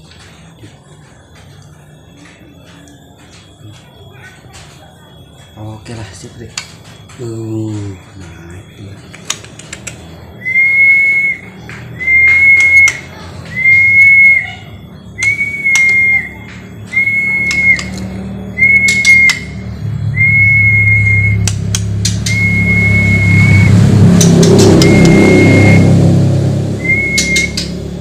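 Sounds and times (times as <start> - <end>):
sharp clicks: 9.1 - 10.1, 15.2 - 16.6, 17.3 - 18.1, 18.7 - 19.5, 21.0 - 22.5, 24.2 - 25.2, 27.0 - 27.8
person whistling a flat note: 24.7 - 25.9, 26.8 - 27.7.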